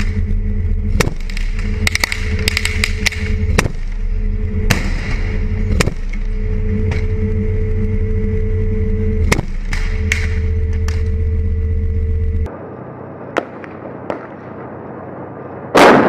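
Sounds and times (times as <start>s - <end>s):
diesel engine droning: 0.0s - 16.0s
gunshot cracks: 15.8s - 16.0s.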